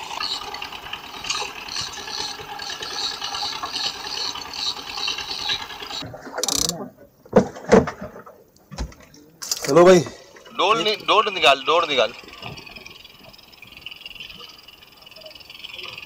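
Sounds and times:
fishing reel ratcheting: 6.4s - 6.8s, 11.6s - 16.0s.

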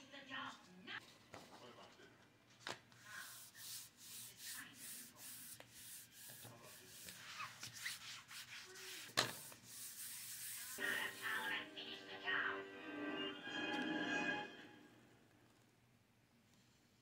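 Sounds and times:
hand rubbing paper: 2.9s - 11.5s.

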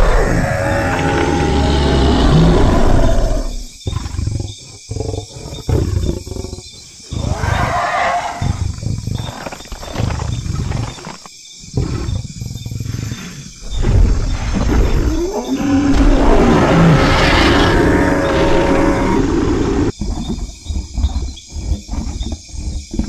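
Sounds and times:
dinosaur roars: 0.0s - 3.7s, 13.1s - 19.9s.

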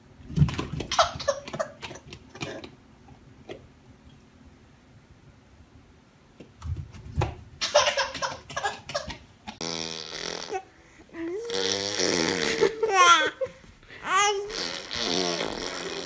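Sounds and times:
baby vocalising and squealing: 10.1s - 16.0s.

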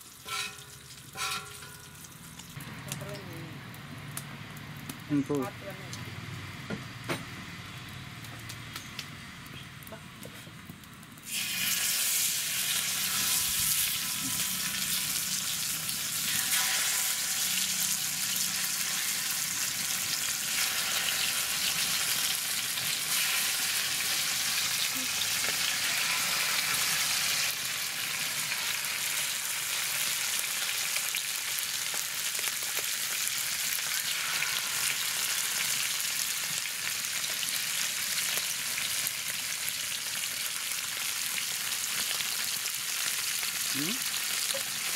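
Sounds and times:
fish frying in oil: 11.2s - 44.9s.

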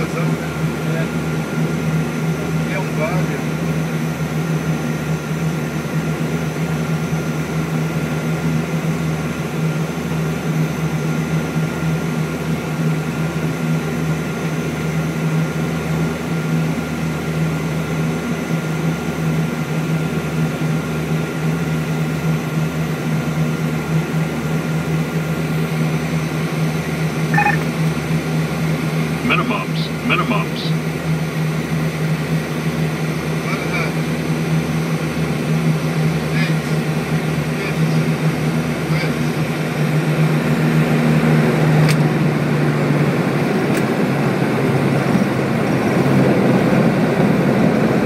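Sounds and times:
turboprop engines droning: 0.0s - 48.0s
thin high tone: 27.3s - 27.7s.

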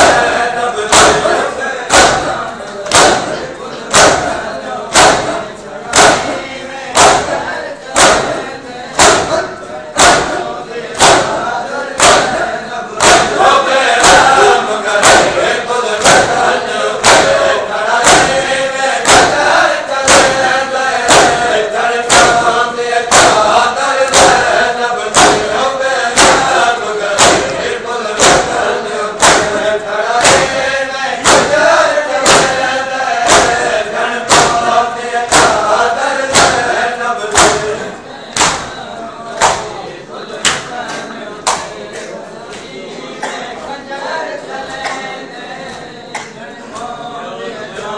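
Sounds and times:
crowd of men chanting: 0.0s - 47.9s
hands slapping chests: 0.9s - 6.4s, 7.0s - 7.4s, 8.0s - 8.4s, 9.0s - 9.4s, 10.0s - 11.4s, 12.0s - 12.4s, 13.0s - 13.4s, 14.0s - 14.4s, 15.0s - 15.4s, 16.0s - 17.4s, 18.0s - 25.6s, 26.2s - 27.6s, 28.2s - 28.6s, 29.2s - 30.6s, 31.2s - 31.6s, 32.2s - 35.7s, 36.3s - 36.7s, 37.3s - 37.8s, 38.4s - 38.8s, 39.4s - 39.7s, 41.4s - 42.7s.

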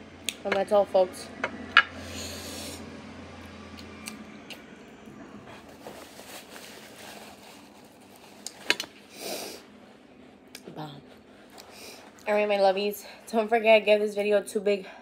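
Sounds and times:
paper napkin rustling: 5.6s - 8.7s.

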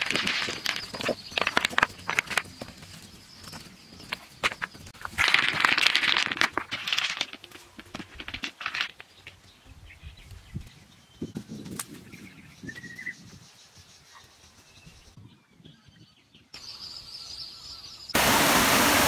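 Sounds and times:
stones clacking and grating: 0.0s - 9.4s.

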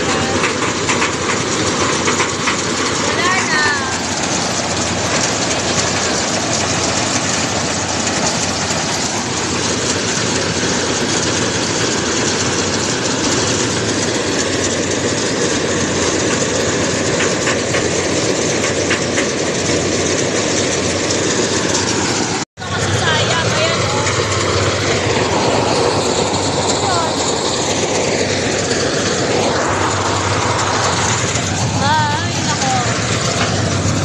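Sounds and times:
combine harvester running: 0.0s - 34.0s.

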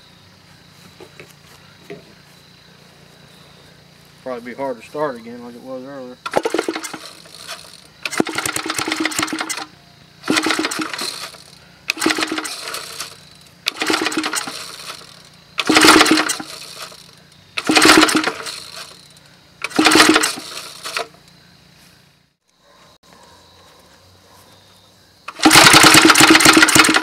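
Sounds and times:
recoil starter rope pulls: 6.2s - 21.2s, 25.3s - 27.0s.

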